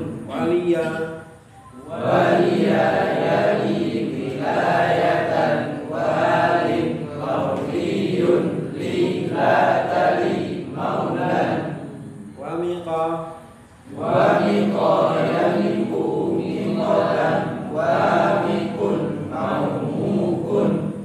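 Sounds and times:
group of voices chanting: 13.9 - 21.0.

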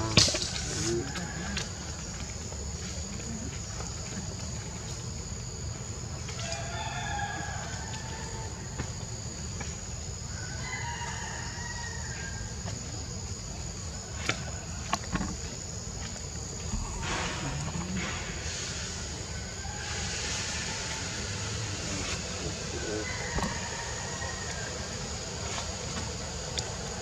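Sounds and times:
rooster crowing: 0.0 - 1.9, 6.4 - 8.7, 10.3 - 12.4, 19.2 - 25.2.

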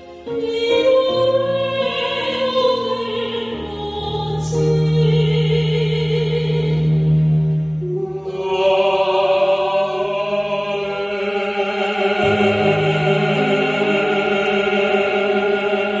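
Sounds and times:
musical accompaniment: 0.0 - 16.0
man and woman singing duet: 7.9 - 16.0.

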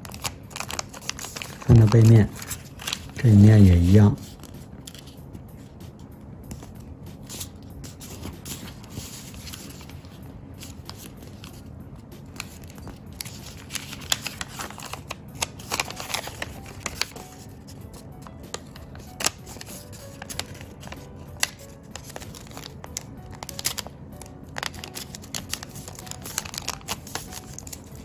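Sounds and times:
paper rustling and crinkling: 0.0 - 5.2, 6.5 - 28.0
soft background music: 0.0 - 28.0.

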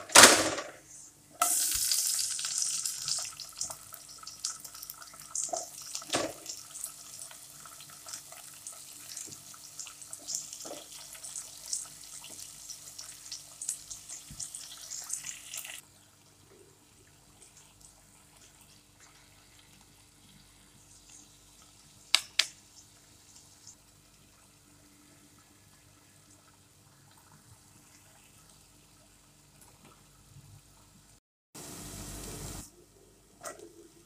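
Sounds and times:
vegetables sizzling in hot oil: 1.4 - 15.8, 31.6 - 32.7.

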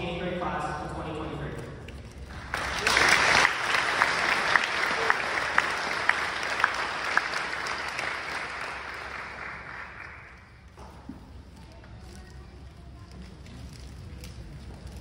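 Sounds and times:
audience applauding: 2.3 - 10.6.

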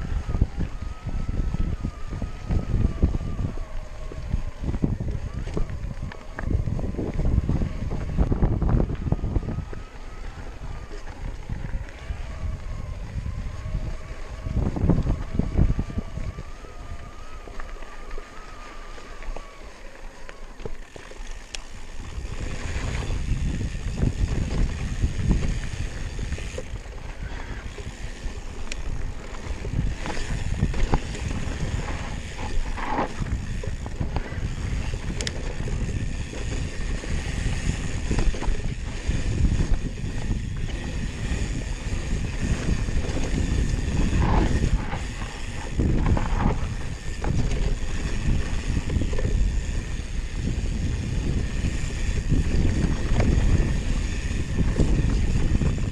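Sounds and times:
bike tyre noise on dirt: 0.0 - 55.9
wind buffeting microphone: 0.0 - 55.9
bike knocks and rattles: 27.8 - 55.9.

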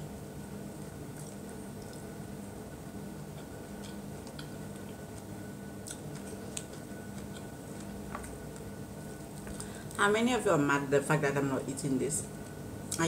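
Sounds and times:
steady low hum: 0.0 - 13.0
chewing fried chicken: 0.6 - 10.0.

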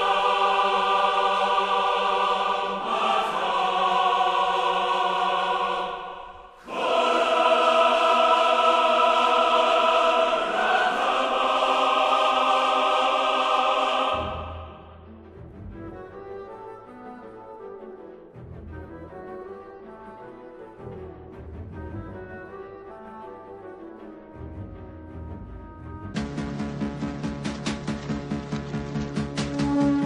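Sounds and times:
choir singing held chords: 0.0 - 15.1.

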